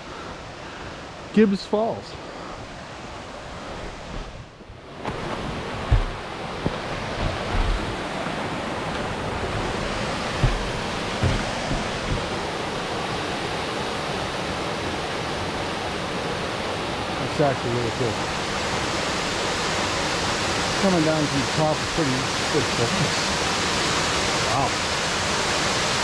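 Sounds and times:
waterfall rushing: 0.0 - 26.0
low thumps: 3.8 - 12.6.

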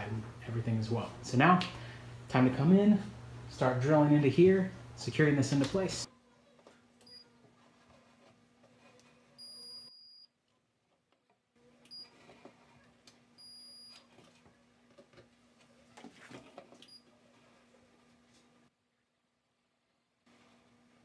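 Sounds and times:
stud finder beeping: 9.4 - 10.3, 13.4 - 14.1.

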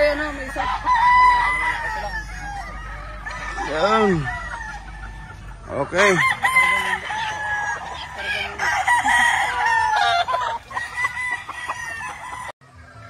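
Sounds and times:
chickens clucking: 0.0 - 13.0
roosters crowing: 0.0 - 13.0.

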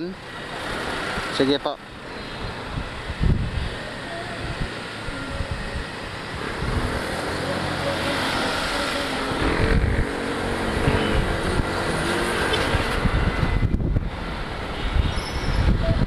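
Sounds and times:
road noise: 0.0 - 16.0
wind rushing over microphone: 0.2 - 16.0
motorcycle engine: 6.2 - 13.7.

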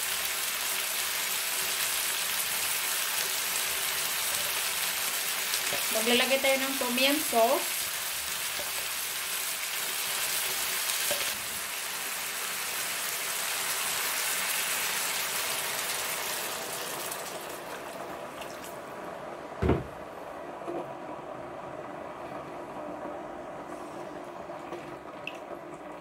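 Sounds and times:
shrimp sizzling in skillet: 0.0 - 17.4
thump: 19.6 - 20.0.

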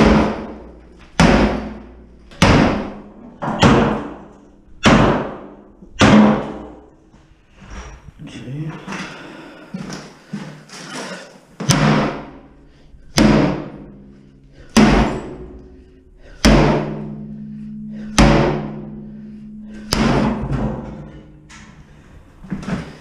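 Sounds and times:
sledgehammer striking metal bathtub: 0.0 - 6.8, 11.6 - 23.0
tub ringing low metallic tone: 12.3 - 22.6.

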